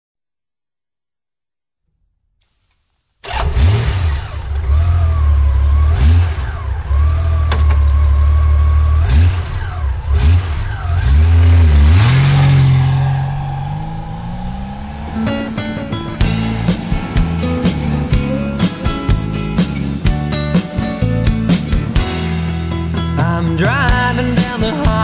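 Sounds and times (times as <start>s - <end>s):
vehicle engine starting and revving: 3.2s - 22.9s.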